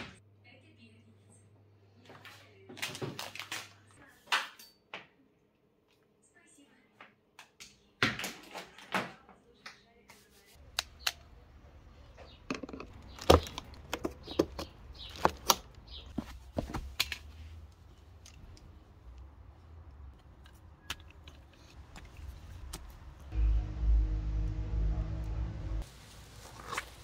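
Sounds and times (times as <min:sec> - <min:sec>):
cable and plugs clicking: 0:20.1 - 0:22.9
faint low hum: 0:21.6 - 0:25.8.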